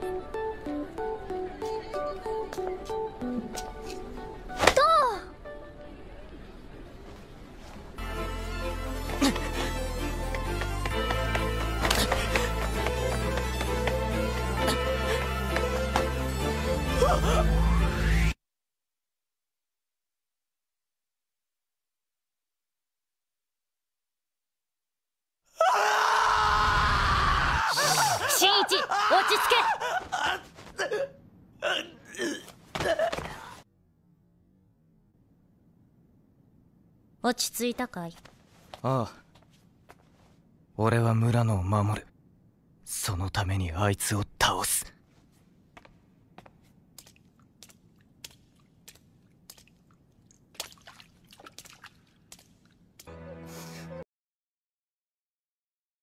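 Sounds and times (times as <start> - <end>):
footsteps on wet floor: 10.2 - 14.3, 15.1 - 16.2, 45.1 - 53.1
man screaming: 25.6 - 30.4
wet squelching steps: 45.2 - 53.1.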